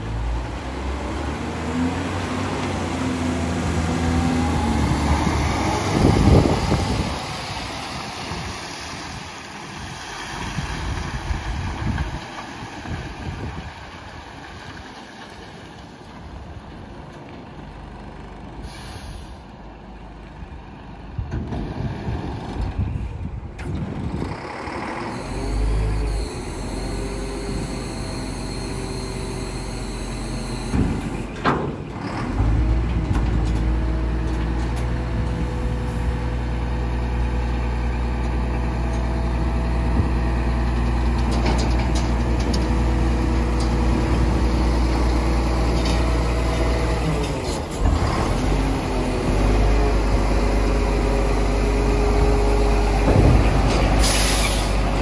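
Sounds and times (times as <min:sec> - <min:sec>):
diesel truck engine: 0:00.0 - 0:55.0
air brake hiss: 0:18.6 - 0:19.5, 0:54.0 - 0:54.8.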